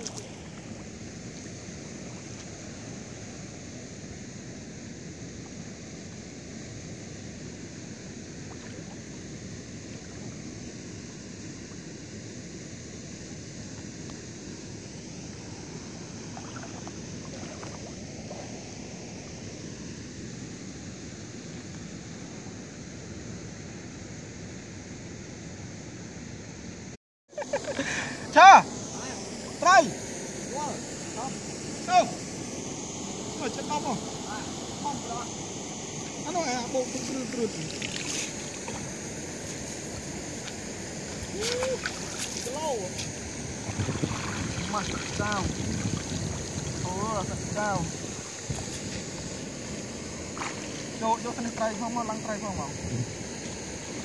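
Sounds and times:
water lapping: 0.0 - 3.0, 15.3 - 18.7, 36.2 - 51.7
wind on microphone: 37.6 - 51.0, 52.5 - 54.0.

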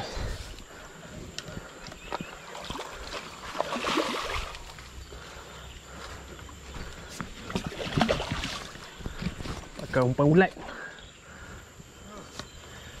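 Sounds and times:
fish splashing and thrashing: 1.6 - 5.3, 7.0 - 9.7
small water splashes: 2.1 - 4.9, 7.4 - 9.1.

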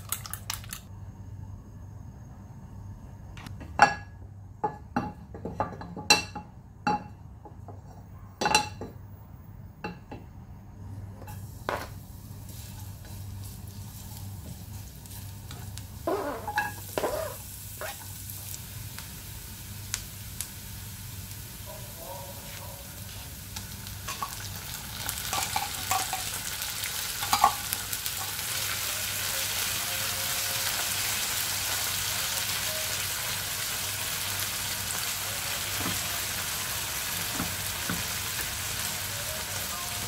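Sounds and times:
oil sizzling in pan: 11.2 - 40.0
utensils clinking against frying pan: 25.3 - 26.4, 27.2 - 27.7.

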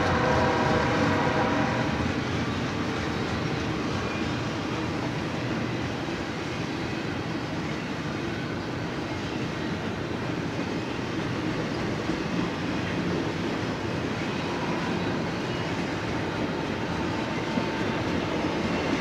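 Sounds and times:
steel wheels on rails: 0.0 - 19.0.

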